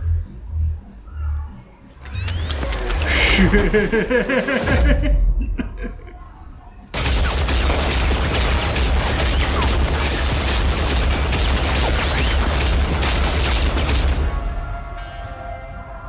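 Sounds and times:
sharp hits and bangs: 6.9s - 15.0s.

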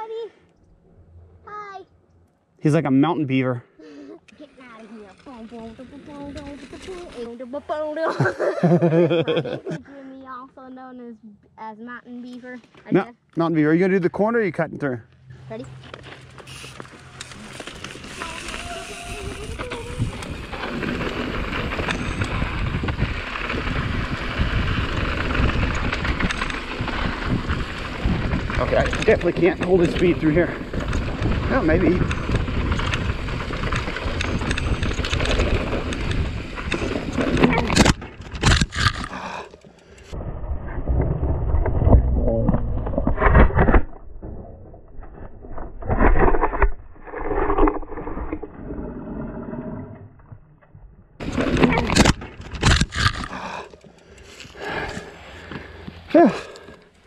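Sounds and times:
bike tyres crunching on gravel: 15.8s - 40.2s, 51.2s - 57.0s
wind rushing over microphone: 18.3s - 39.1s.

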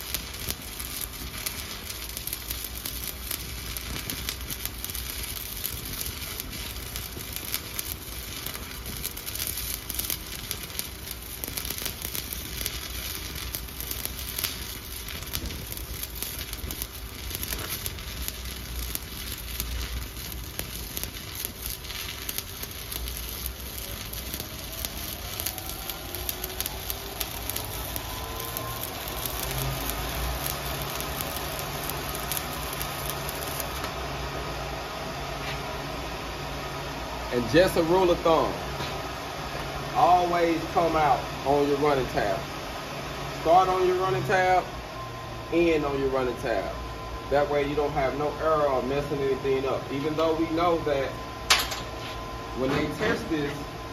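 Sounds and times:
welding arc crackling and sizzling: 0.0s - 53.9s
faint rising whine: 14.5s - 53.9s.

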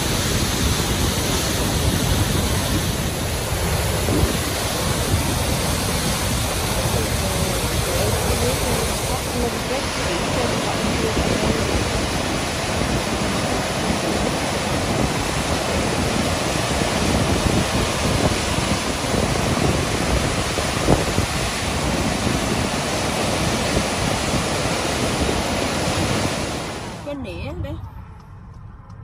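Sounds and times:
waterfall rushing: 0.0s - 27.0s.

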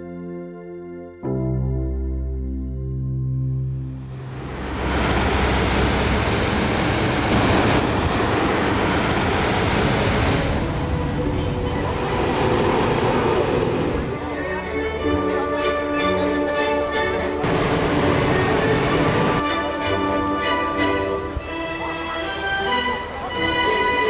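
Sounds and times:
propane burner flame roaring: 4.0s - 14.2s, 17.4s - 19.4s.

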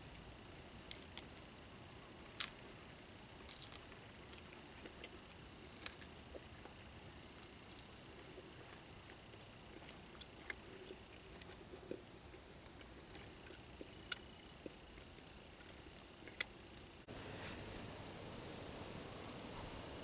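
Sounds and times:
wood fire hissing and crackling: 0.0s - 20.0s
man chewing and smacking: 3.4s - 17.0s.

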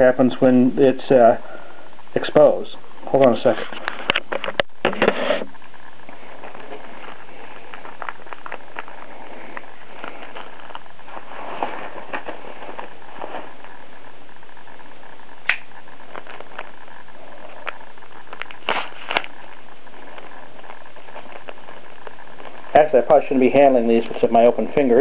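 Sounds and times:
steady hiss: 0.0s - 25.0s
package crinkling: 6.1s - 14.0s.

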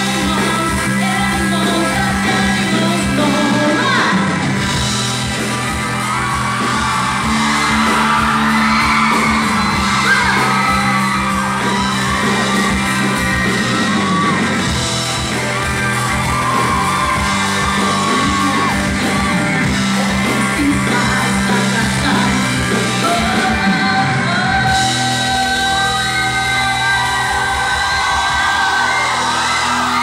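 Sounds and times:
woman singing: 0.0s - 4.4s, 20.4s - 28.1s
live pop-rock band: 0.0s - 30.0s.

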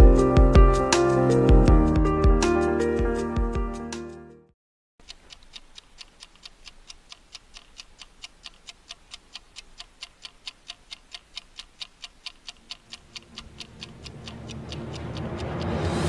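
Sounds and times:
clock ticking: 5.0s - 16.0s
low swell: 13.8s - 16.0s.

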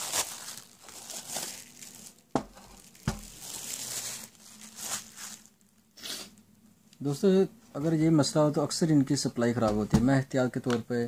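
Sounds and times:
plastic wrap crinkling and tearing: 0.0s - 5.8s.

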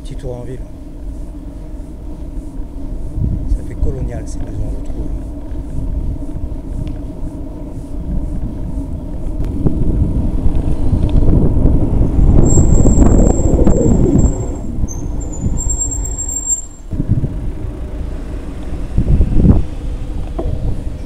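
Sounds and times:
motorhome engine and road noise: 0.0s - 21.0s
high thin brake squeal: 12.4s - 13.4s, 14.1s - 16.9s.

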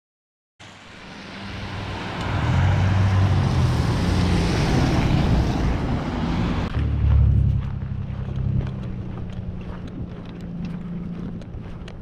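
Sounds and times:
tyres hissing on wet road: 0.6s - 6.6s
wind buffeting microphone: 3.7s - 12.0s.

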